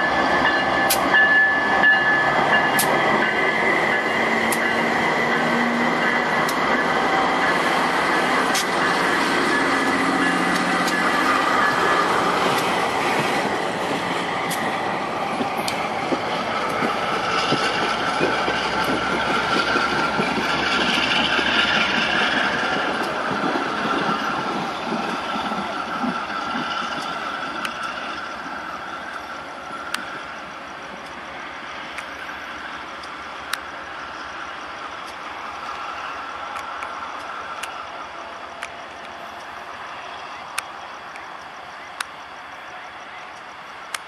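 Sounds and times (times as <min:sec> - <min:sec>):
high wheel squeal: 0:00.0 - 0:30.5
train wheels clicking over rail joints: 0:00.0 - 0:44.0.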